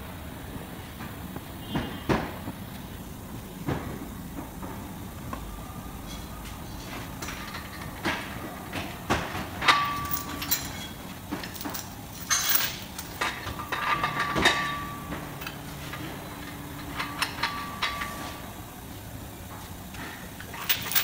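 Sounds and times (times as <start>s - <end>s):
chain and hook clanking: 9.6s - 18.3s, 20.5s - 21.0s.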